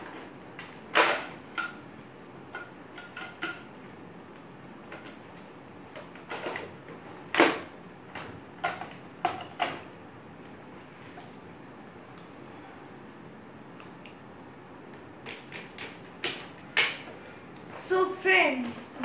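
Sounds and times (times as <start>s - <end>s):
plastic parts clicking and knocking: 0.0s - 1.8s, 2.4s - 3.7s, 4.8s - 9.9s, 15.0s - 17.8s.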